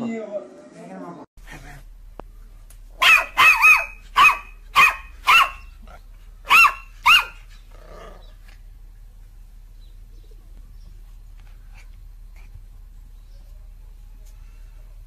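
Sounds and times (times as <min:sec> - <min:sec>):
puppy barking: 0:03.0 - 0:07.5.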